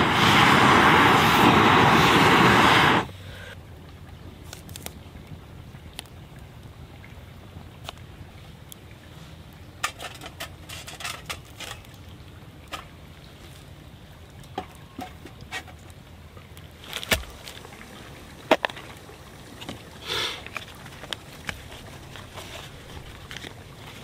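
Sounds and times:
wood fire crackling and popping: 0:00.0 - 0:03.1, 0:14.4 - 0:24.0
metal grill grate and dishes clinking: 0:09.7 - 0:12.0, 0:14.6 - 0:15.9.

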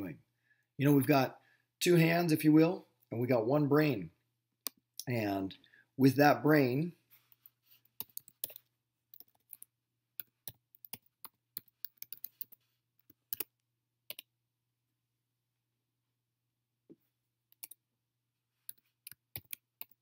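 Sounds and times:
typing on computer keyboard: 0:08.0 - 0:14.3, 0:18.7 - 0:20.0.

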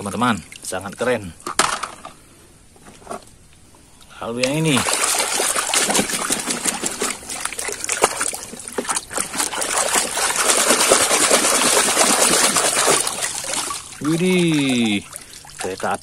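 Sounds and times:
water sloshing and splashing in a tub: 0:00.0 - 0:01.4, 0:04.3 - 0:16.0
wet drips: 0:04.4 - 0:16.0.

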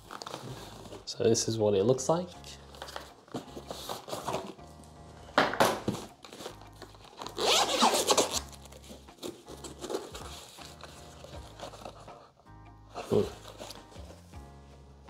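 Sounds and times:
packaging rustling: 0:00.0 - 0:01.2, 0:02.7 - 0:04.6, 0:05.8 - 0:12.1
zipper being pulled: 0:06.5 - 0:08.6.

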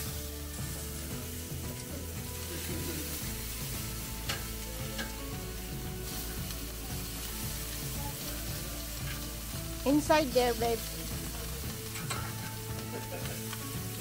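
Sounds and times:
meat sizzling on a grill: 0:00.0 - 0:14.0
tongs clicking on grate: 0:04.2 - 0:05.3, 0:11.7 - 0:13.7.

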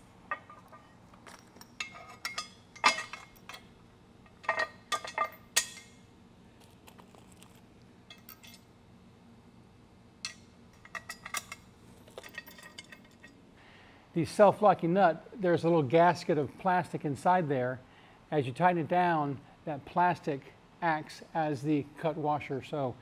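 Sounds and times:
metal bolts clinking on steel: 0:00.3 - 0:06.0, 0:08.1 - 0:08.7, 0:10.2 - 0:13.4.

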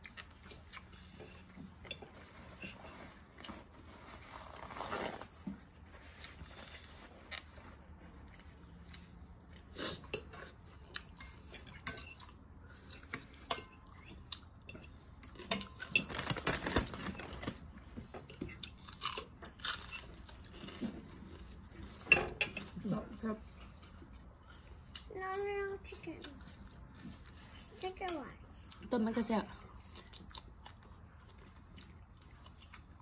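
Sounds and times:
chewing: 0:00.0 - 0:03.6, 0:29.6 - 0:33.0.

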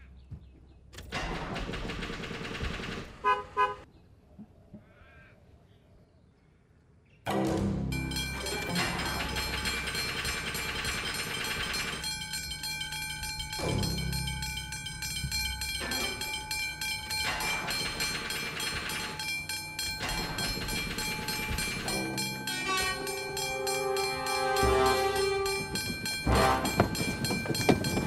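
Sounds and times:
train wheels clattering on rails: 0:08.1 - 0:28.0
train horn: 0:22.5 - 0:27.1.

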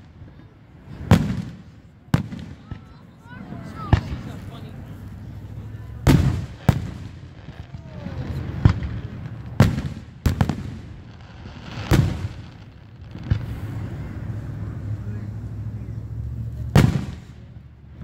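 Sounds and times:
fireworks booming: 0:00.0 - 0:18.0.

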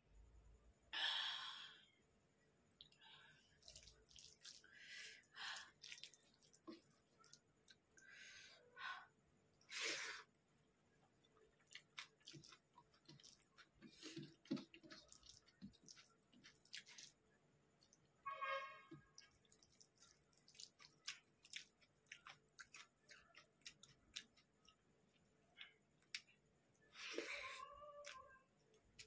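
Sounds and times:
wet chewing and mouth noises: 0:03.6 - 0:04.7, 0:05.5 - 0:08.0, 0:11.2 - 0:17.2, 0:19.0 - 0:29.0.

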